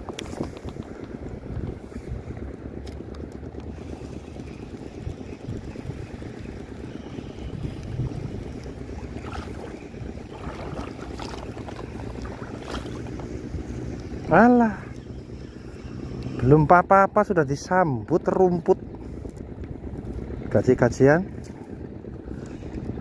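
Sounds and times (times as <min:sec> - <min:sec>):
wind noise on microphone: 0:00.0 - 0:02.4, 0:04.9 - 0:13.6
water lapping: 0:00.0 - 0:16.2.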